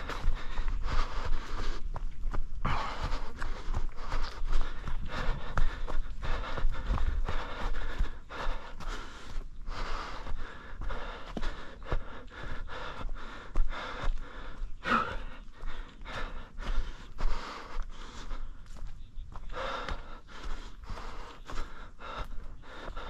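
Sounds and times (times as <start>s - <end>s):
footfalls on trail: 0.0s - 23.0s
runner panting: 0.0s - 23.0s
voiced gasp: 2.6s - 18.5s.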